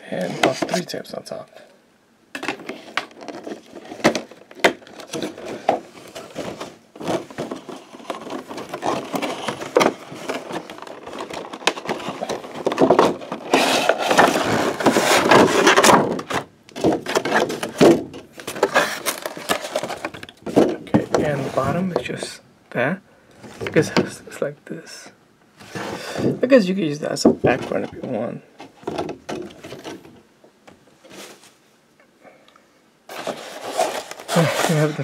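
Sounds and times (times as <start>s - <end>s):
packaging clicks and rustles: 2.4s - 21.4s
plastic packaging crackling: 2.4s - 21.4s.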